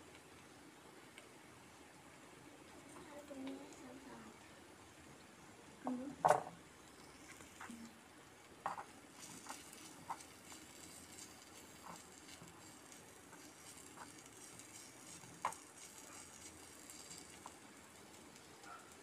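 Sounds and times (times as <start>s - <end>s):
low hiss: 0.0s - 19.0s
spatula tapping and scraping pan: 8.6s - 17.6s.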